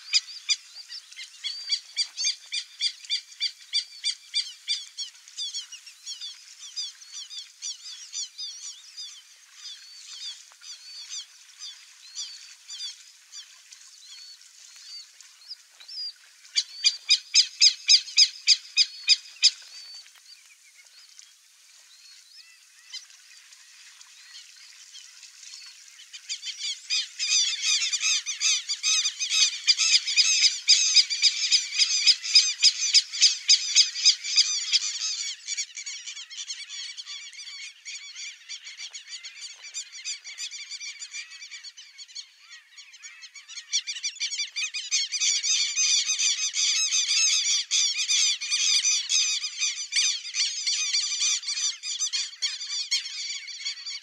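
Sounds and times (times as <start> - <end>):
grebes squeaky calls: 26.2 - 54.0.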